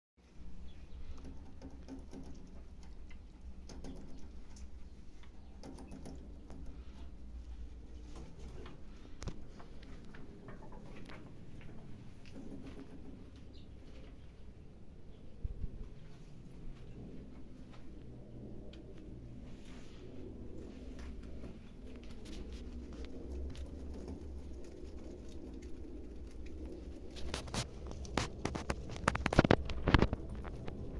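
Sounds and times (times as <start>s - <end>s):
steady low hum: 0.2s - 30.9s
rabbits rustling in straw: 18.9s - 30.8s.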